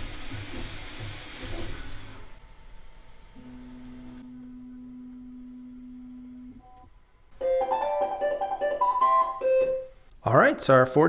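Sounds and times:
piano music: 7.4s - 10.0s.

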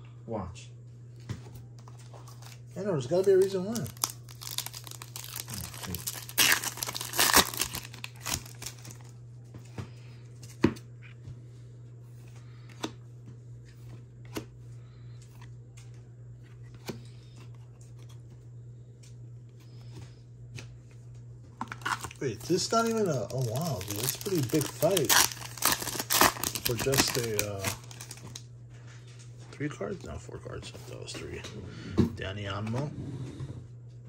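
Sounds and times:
steady low hum: 0.0s - 34.0s
foil wrapper tearing and crinkling: 2.3s - 9.1s, 21.7s - 28.4s.

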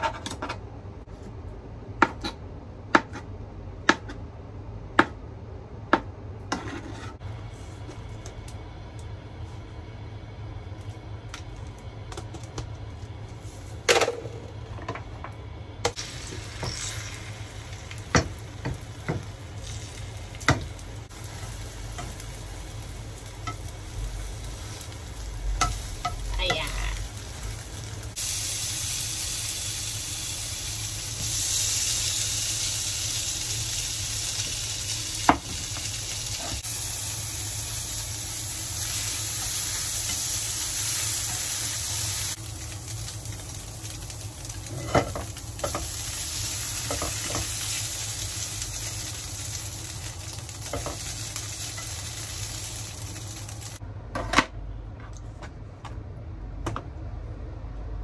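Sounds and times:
egg sizzling in frying pan: 15.9s - 53.8s
food frying in oil: 15.9s - 53.8s.

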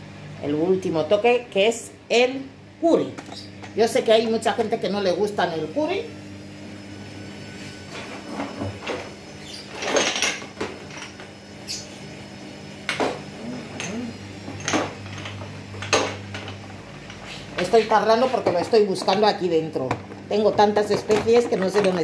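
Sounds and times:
steady low hum: 0.0s - 22.0s
jars knocking and clinking: 17.6s - 22.0s.

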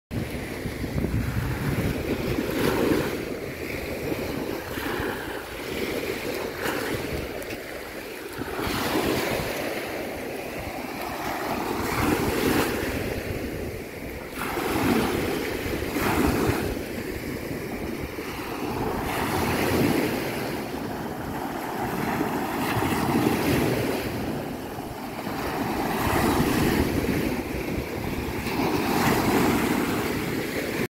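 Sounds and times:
small waves lapping on beach: 0.2s - 30.9s.

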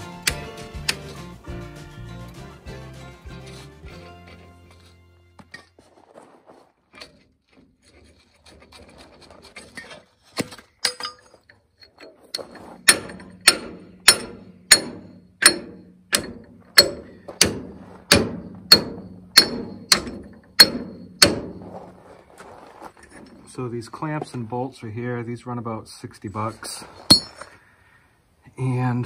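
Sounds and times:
hammer blows on metal: 12.8s - 21.6s.

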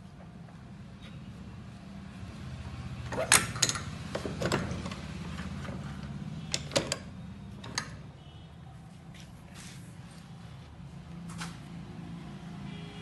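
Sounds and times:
metal clicks and knocks: 3.3s - 5.0s, 6.5s - 8.0s.

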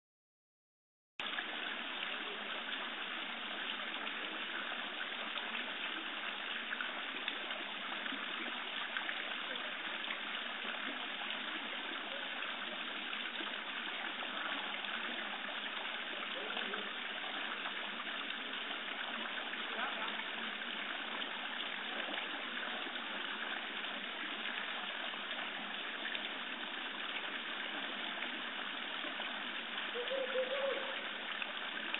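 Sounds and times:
fountain water splashing: 1.2s - 31.9s.

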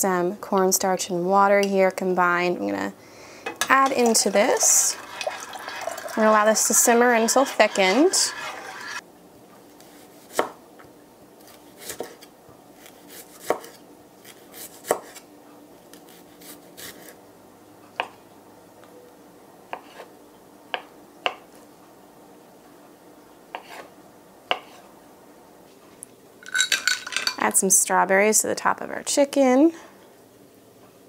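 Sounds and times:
knife chopping on wooden board: 10.2s - 10.6s, 11.8s - 12.2s, 12.9s - 15.2s, 19.7s - 20.1s, 23.5s - 23.9s, 24.5s - 24.8s.

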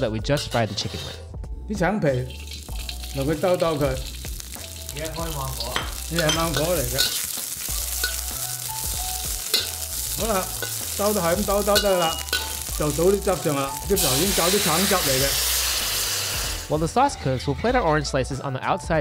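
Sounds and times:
metal spatula scraping wok: 0.0s - 1.4s, 2.0s - 4.8s, 9.4s - 16.7s
oil sizzling: 0.0s - 17.0s.

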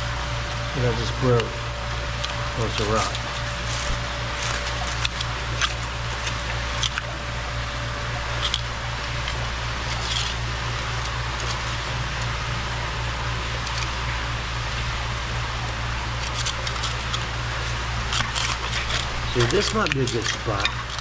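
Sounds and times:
stones and gravel scraping: 2.6s - 7.1s, 18.0s - 21.0s.

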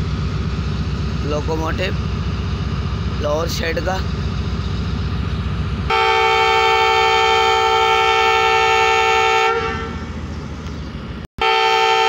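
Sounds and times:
diesel engine rumble: 0.0s - 12.0s
locomotive air horn blast: 5.9s - 10.1s, 11.4s - 12.0s.

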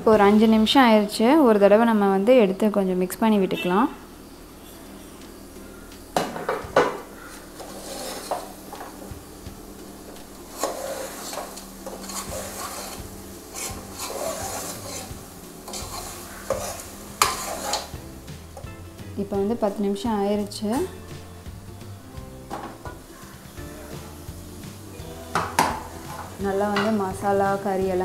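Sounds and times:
metal spoon scraping pot: 7.2s - 9.0s, 10.4s - 18.0s.

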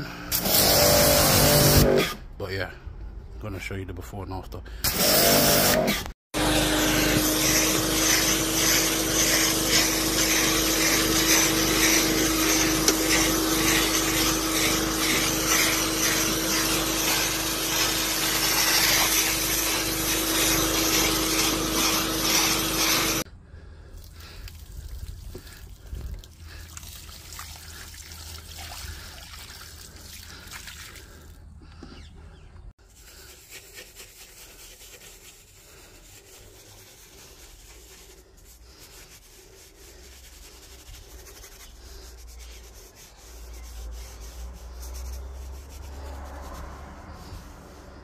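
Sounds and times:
brush scrubbing leather: 6.6s - 23.3s, 32.8s - 48.0s.

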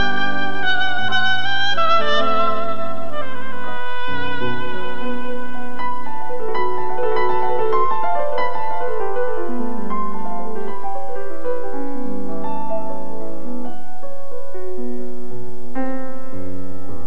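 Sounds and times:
oboe playing long notes: 0.0s - 13.6s
piano accompaniment: 0.0s - 17.0s.

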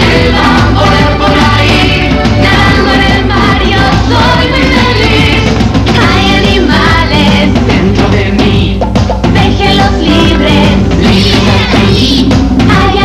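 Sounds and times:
children's pop song with singing: 0.0s - 13.0s.

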